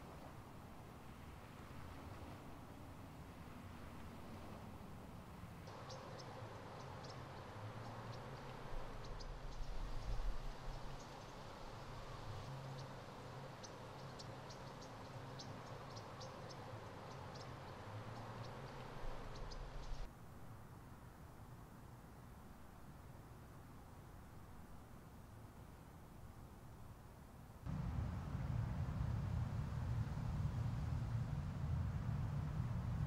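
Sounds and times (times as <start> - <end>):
low rumble: 27.7 - 33.0
steady low hum: 27.7 - 33.0.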